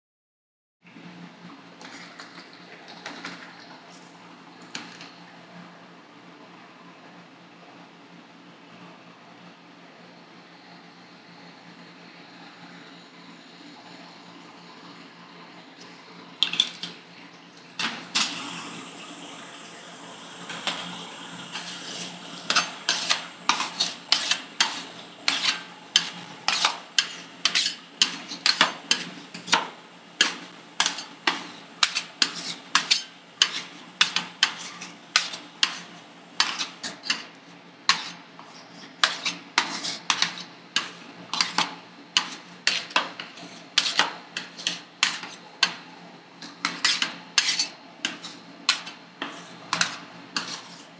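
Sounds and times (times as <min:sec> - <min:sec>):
scraping and liquid sounds: 0:20.5 - 0:45.8, 0:46.4 - 0:50.9.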